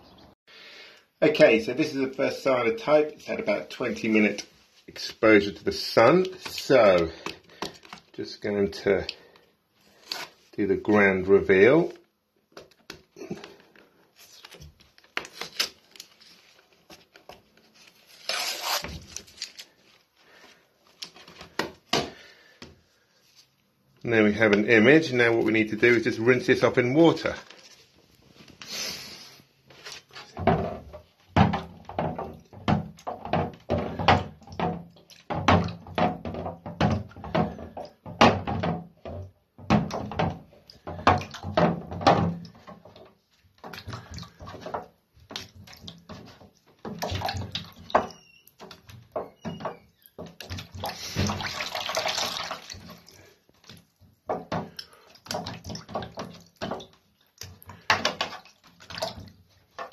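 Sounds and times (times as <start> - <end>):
water splashing in plastic tray: 2.1 - 17.4, 29.8 - 59.9.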